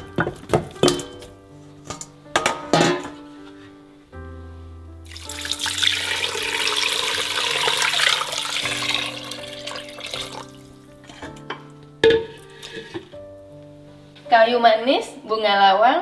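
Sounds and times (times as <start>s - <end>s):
water pouring and splashing: 5.1s - 11.1s.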